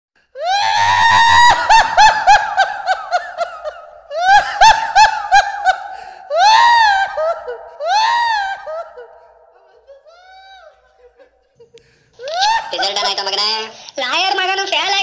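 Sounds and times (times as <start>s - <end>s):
high-pitched laughter: 6.7s - 13.8s.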